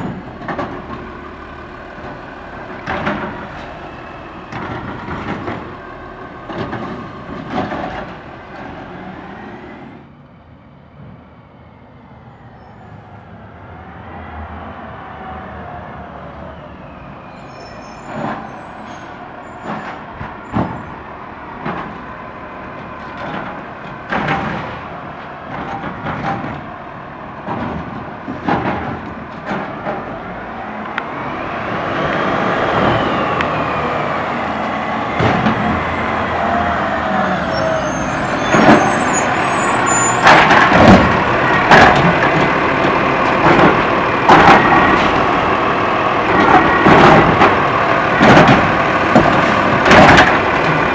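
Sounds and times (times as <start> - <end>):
garbage truck body clanking: 2.0 - 3.7, 27.4 - 30.2, 38.4 - 45.4, 46.3 - 50.9
truck engine revving with whine: 29.8 - 50.9
loud bangs of trash cart dumping: 35.2 - 36.1, 38.4 - 45.4, 46.3 - 50.9.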